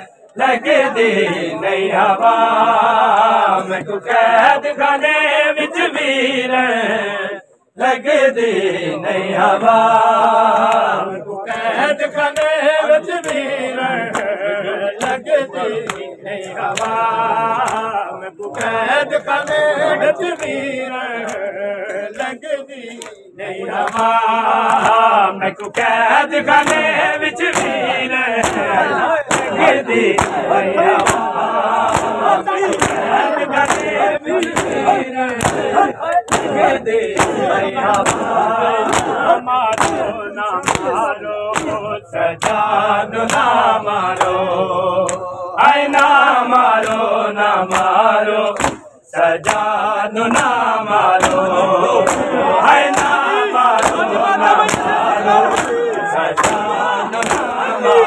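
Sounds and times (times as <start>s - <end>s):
men chanting together: 0.0s - 58.0s
hands slapping bare chests: 10.5s - 12.6s, 13.2s - 13.5s, 15.0s - 19.7s, 23.8s - 25.0s, 25.6s - 43.6s, 44.2s - 44.4s, 46.8s - 47.1s, 47.7s - 57.7s.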